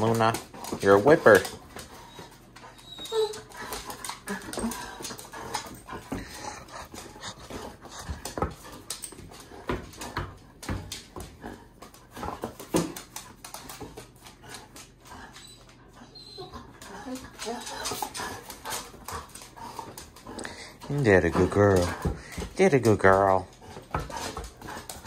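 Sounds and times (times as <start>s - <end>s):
paws scrabbling on hardwood floor: 0.0s - 25.0s
dog whimpering: 1.2s - 8.4s, 15.2s - 18.4s.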